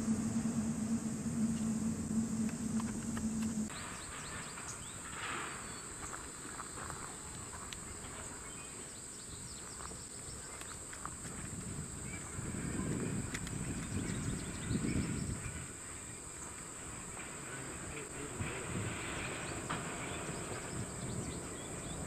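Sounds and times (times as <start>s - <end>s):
low steady hum: 0.0s - 4.2s
insect chorus drone: 0.0s - 22.0s.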